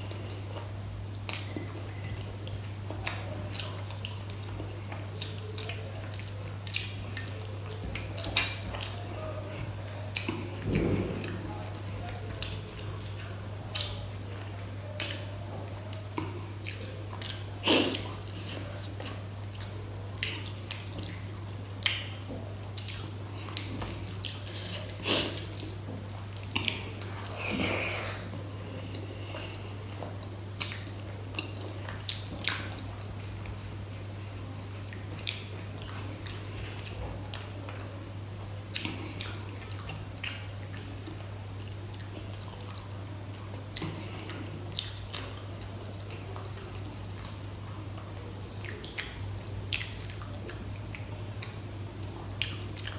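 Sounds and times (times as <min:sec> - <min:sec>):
steady low hum: 0:00.0 - 0:52.9
wet squishing of food by hand: 0:00.0 - 0:52.9
chewing clicks and lip smacks: 0:01.2 - 0:09.0, 0:12.1 - 0:15.3, 0:16.2 - 0:27.5, 0:28.9 - 0:33.6, 0:34.8 - 0:37.9, 0:38.7 - 0:43.0, 0:43.6 - 0:51.6, 0:52.4 - 0:52.9.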